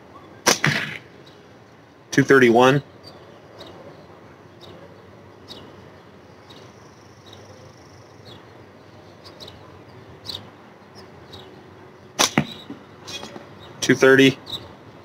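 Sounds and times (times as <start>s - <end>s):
small bird chirping: 2.9s - 11.7s, 14.4s - 14.8s.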